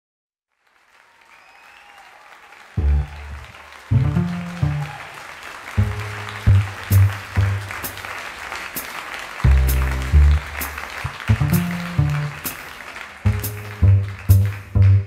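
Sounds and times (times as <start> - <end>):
applause: 0.5 - 15.0
club crowd noise: 0.9 - 15.0
low bass line: 2.8 - 4.8, 5.8 - 7.8, 9.5 - 12.4, 13.3 - 15.0.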